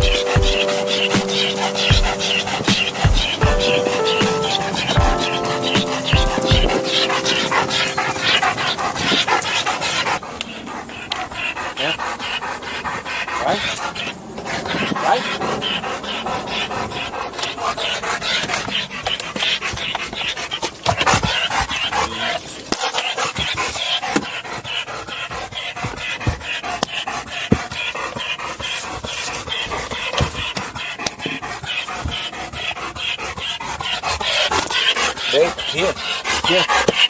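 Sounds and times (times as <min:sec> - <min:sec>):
sharp knocks: 0:00.0 - 0:07.0
dog panting: 0:00.0 - 0:37.0.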